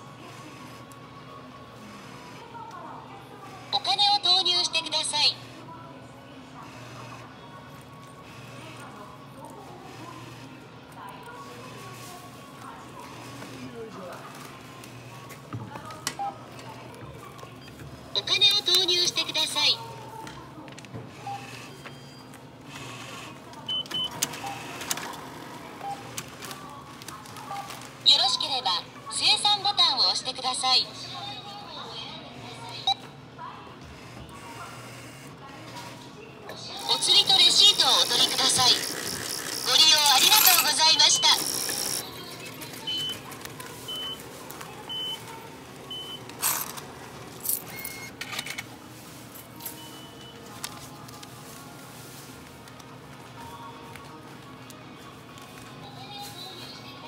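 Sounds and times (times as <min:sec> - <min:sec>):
banknote acceptor motor whirring: 0:36.7 - 0:42.4.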